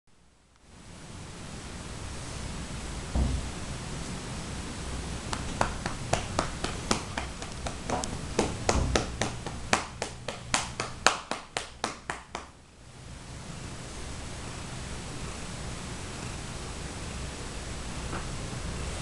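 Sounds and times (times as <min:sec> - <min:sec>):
steady hiss: 0:00.2 - 0:19.0
hand patting a cat: 0:05.3 - 0:12.5.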